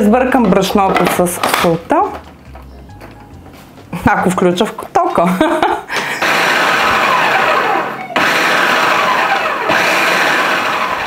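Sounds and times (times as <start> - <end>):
food processor motor whirring: 6.0 - 11.0.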